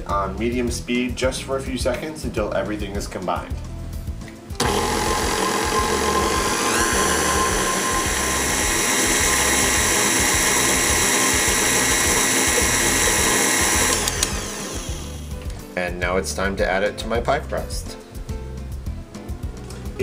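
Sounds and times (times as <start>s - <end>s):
stand mixer motor whining: 4.6s - 15.4s.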